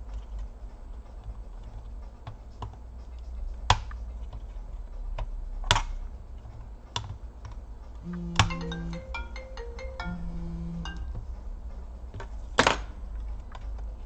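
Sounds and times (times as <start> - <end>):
small clicks and taps on plastic: 5.2 - 7.6.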